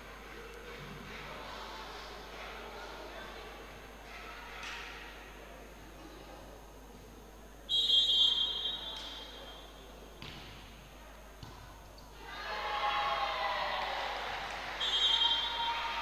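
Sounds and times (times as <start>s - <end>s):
referee's whistle blast: 7.7s - 9.6s, 14.8s - 15.7s.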